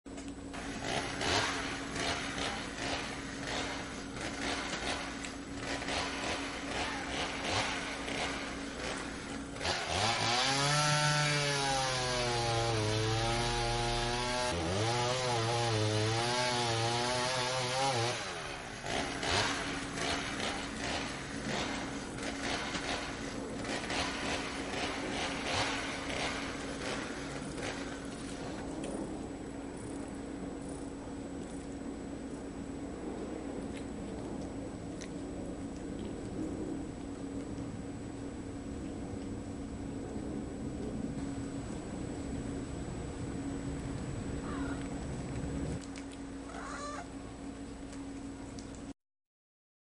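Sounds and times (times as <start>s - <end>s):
buzzing drone wavering in pitch: 0.5s - 31.6s
kitten chewing wet food: 33.6s - 38.2s.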